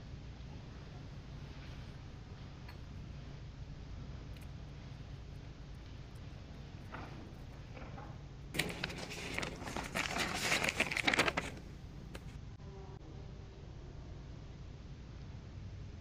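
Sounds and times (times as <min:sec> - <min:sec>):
faint low room hum: 0:00.0 - 0:16.0
paper rustling and crinkling: 0:05.2 - 0:12.4.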